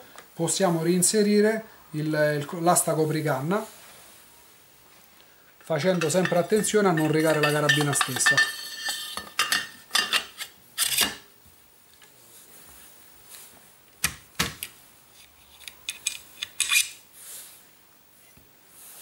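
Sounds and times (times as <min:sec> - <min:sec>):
metal parts scraping: 0:05.8 - 0:11.2, 0:15.4 - 0:17.0.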